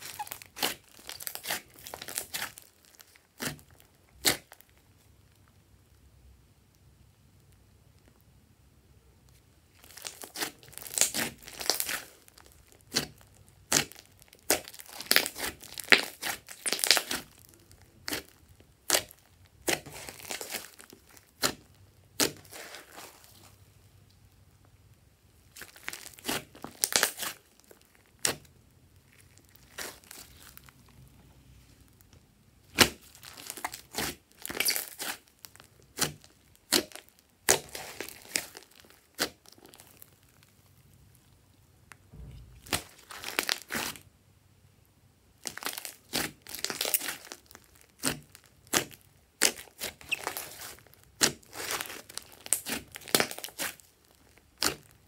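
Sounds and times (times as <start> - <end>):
slime clicking and popping: 32.7 - 40.0, 45.4 - 55.0.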